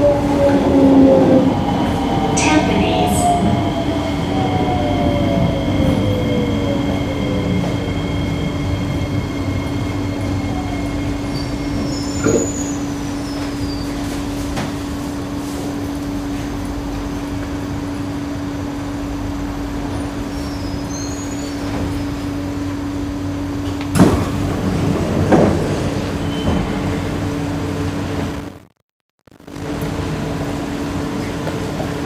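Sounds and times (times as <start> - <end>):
train doors opening: 0.0 - 16.6, 23.6 - 28.3
train equipment hum: 0.0 - 20.9.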